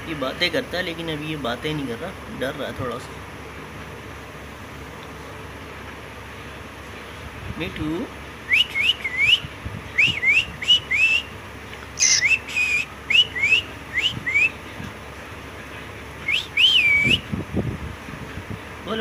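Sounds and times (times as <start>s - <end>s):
cockatiel whistling: 8.5s - 11.3s, 12.0s - 14.6s, 16.2s - 17.3s.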